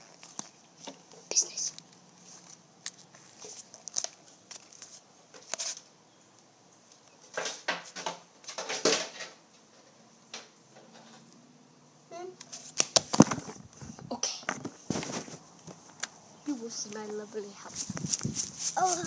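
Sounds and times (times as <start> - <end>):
soft knocks and rustles: 12.6 - 16.0.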